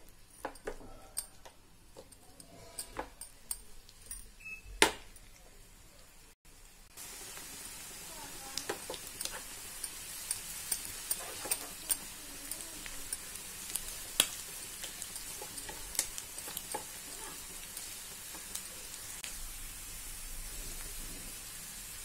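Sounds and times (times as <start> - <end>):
onions sizzling in oil: 0.0 - 22.0
wooden spatula stirring: 8.6 - 19.0.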